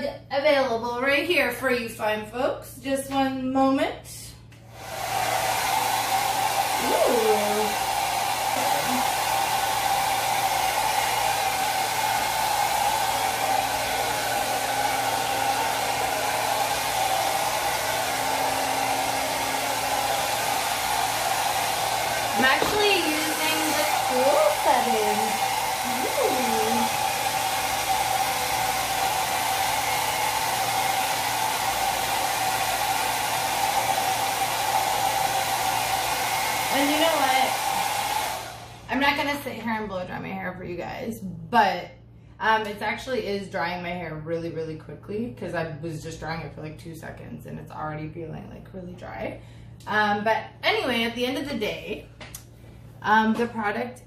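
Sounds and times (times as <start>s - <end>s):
hair dryer blowing: 4.6s - 40.2s.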